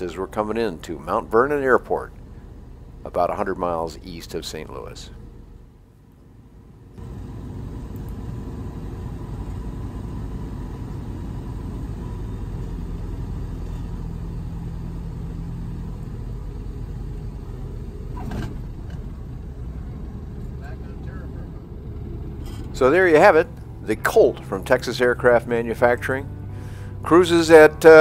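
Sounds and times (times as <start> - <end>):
aircraft engine and propeller drone: 0.0 - 28.0
airflow: 18.2 - 28.0.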